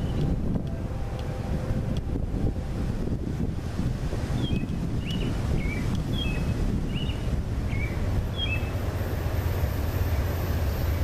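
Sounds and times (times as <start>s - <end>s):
wind rumbling on microphone: 0.0s - 11.0s
bird chirping: 4.4s - 8.8s.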